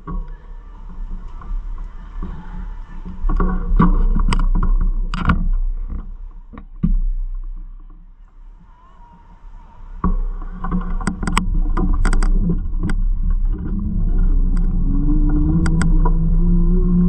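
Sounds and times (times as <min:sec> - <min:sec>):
bicycle tyres rumbling: 0:00.0 - 0:17.0
hum rising in pitch: 0:08.2 - 0:17.0
sharp rattling clicks: 0:10.7 - 0:16.2.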